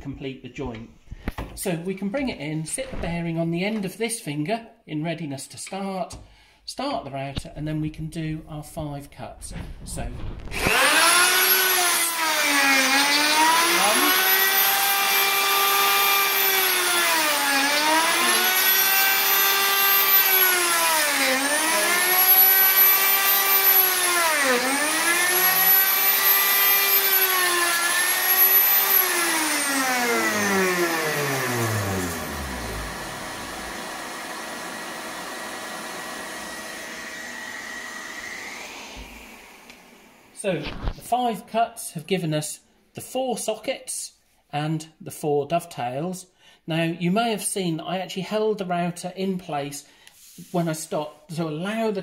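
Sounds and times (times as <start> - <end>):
router motor whine: 10.4 - 40.9
dust extractor hum: 10.5 - 40.4.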